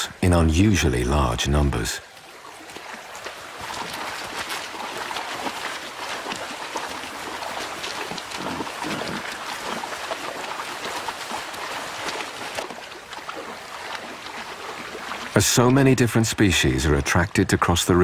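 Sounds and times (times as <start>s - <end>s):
river water rushing: 2.0s - 16.3s
small splashes of wading animals: 2.0s - 17.0s.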